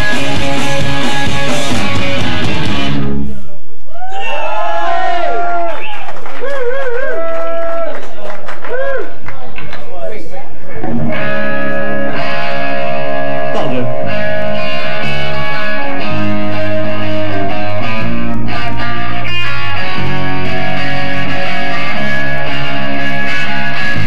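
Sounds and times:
loud rock band playing chords: 0:00.0 - 0:03.4, 0:10.7 - 0:24.0.

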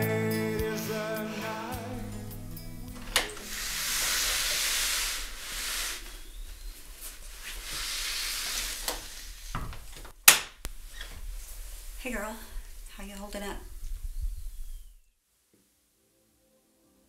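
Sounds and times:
soft hissing rustle: 0:01.0 - 0:10.1, 0:10.7 - 0:15.1
door latch click: 0:03.0 - 0:03.5.

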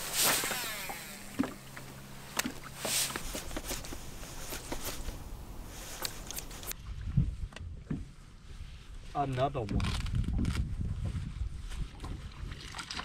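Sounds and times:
fishing line whirring off reel: 0:00.0 - 0:06.7.

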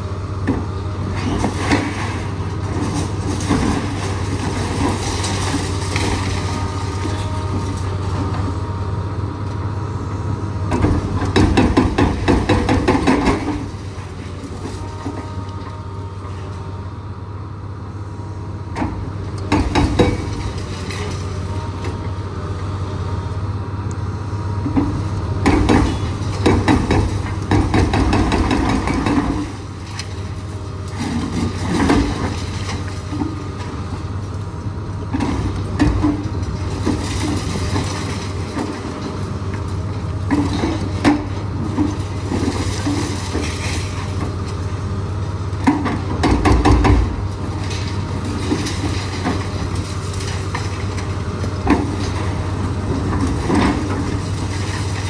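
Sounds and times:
excavator diesel engine running: 0:00.0 - 0:55.0
hydraulic breaker hammering: 0:45.8 - 0:47.2.

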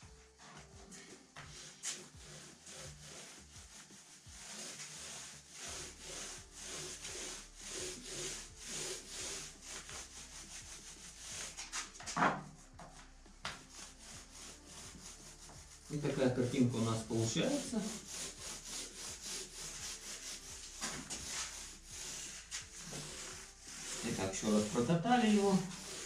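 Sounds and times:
paint roller swishing on plaster: 0:00.0 - 0:26.0.

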